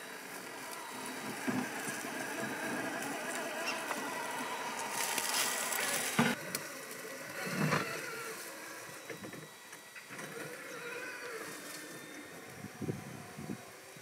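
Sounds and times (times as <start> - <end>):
electric motor and gears running: 0.0 - 14.0.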